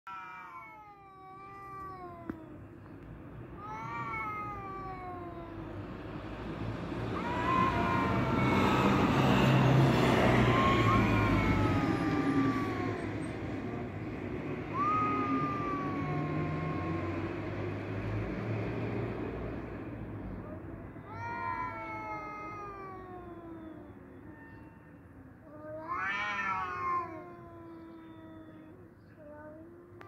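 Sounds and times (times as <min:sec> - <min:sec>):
cats yowling: 0:00.1 - 0:02.6, 0:03.6 - 0:05.8, 0:06.8 - 0:13.9, 0:14.6 - 0:18.0, 0:21.0 - 0:24.8, 0:25.4 - 0:30.0.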